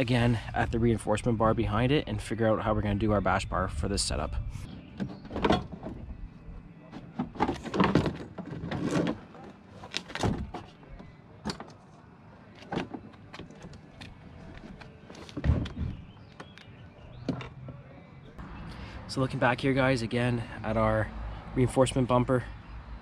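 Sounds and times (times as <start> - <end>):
hand tools clunking and scraping: 4.6 - 17.9.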